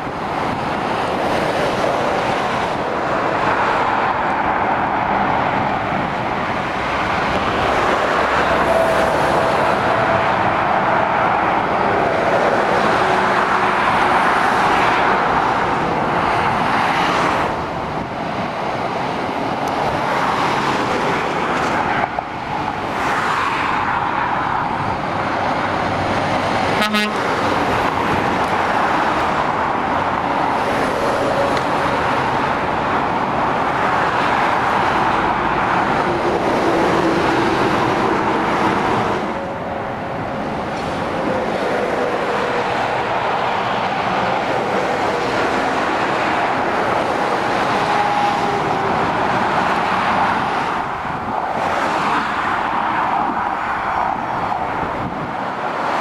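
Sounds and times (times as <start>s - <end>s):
lorries and cars passing: 0.0s - 56.0s.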